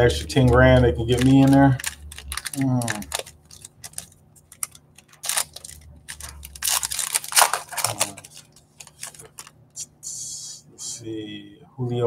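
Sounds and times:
foil wrapper crinkling: 0.0 - 9.6.

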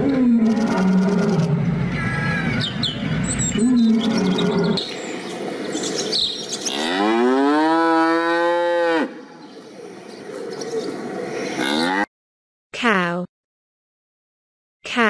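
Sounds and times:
cow mooing: 6.7 - 9.2, 11.6 - 12.1.

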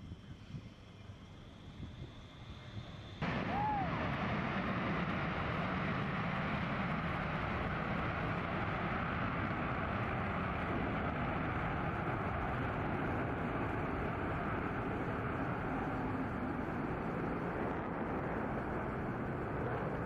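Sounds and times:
jet engines roaring at takeoff: 0.0 - 20.0.

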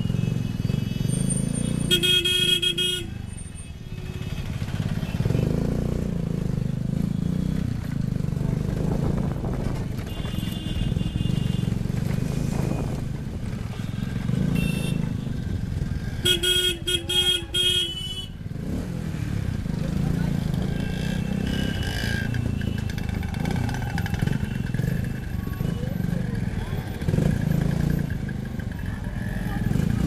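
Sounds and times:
horns tooting: 0.0 - 5.7, 10.0 - 11.9, 13.5 - 18.5, 20.4 - 27.6
city traffic: 0.0 - 30.0
motorcycle engine running: 4.0 - 30.0.

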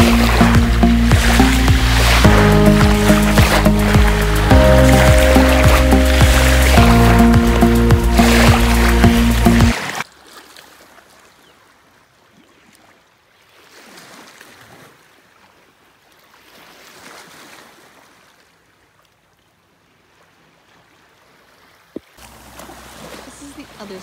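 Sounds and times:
background music: 0.0 - 9.8
small waves lapping: 0.0 - 24.0.

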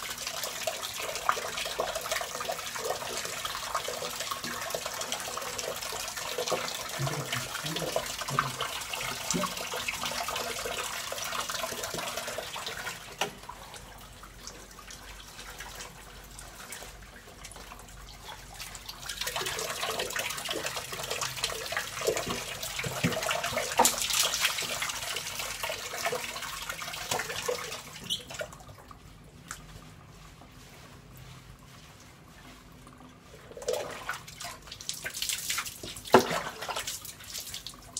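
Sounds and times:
tap water running into a bucket: 0.0 - 29.6, 33.4 - 37.9
water splashing: 18.2 - 37.9.

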